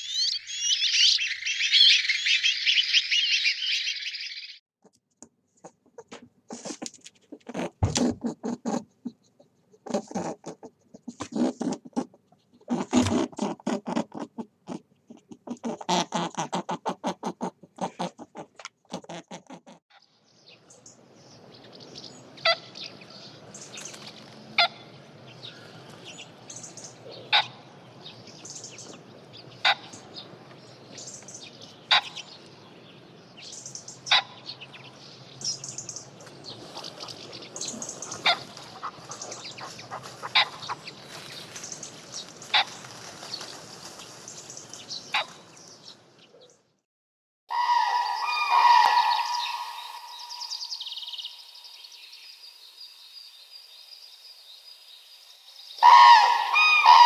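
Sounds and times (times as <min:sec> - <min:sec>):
birds chirping and peeping: 0:00.0 - 0:04.6, 0:20.0 - 0:46.6, 0:47.5 - 0:57.0.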